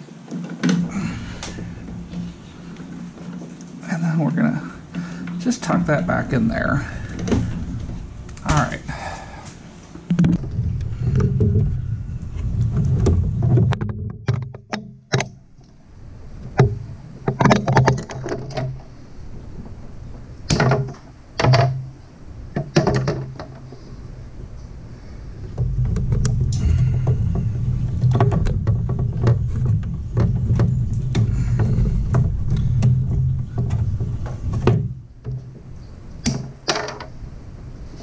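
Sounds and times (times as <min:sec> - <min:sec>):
low rumble: 0:04.3 - 0:14.3, 0:23.7 - 0:36.1
wires knocking against metal box: 0:16.4 - 0:18.9, 0:20.5 - 0:23.9, 0:25.5 - 0:37.2.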